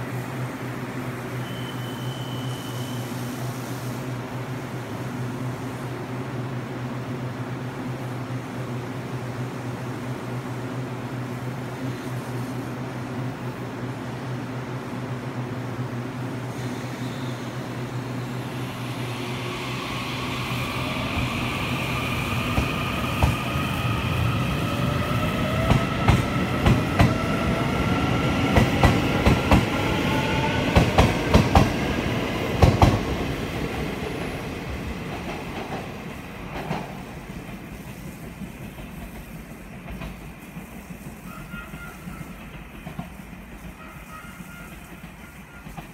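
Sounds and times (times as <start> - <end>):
train wheels clacking over rail joints: 36.5 - 45.9.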